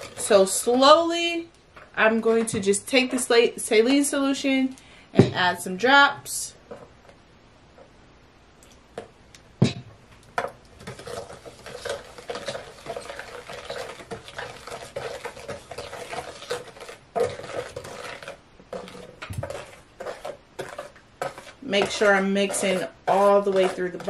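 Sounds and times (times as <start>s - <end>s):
spoon scraping thick mixture: 0.0s - 1.2s, 1.8s - 4.0s, 10.4s - 24.0s.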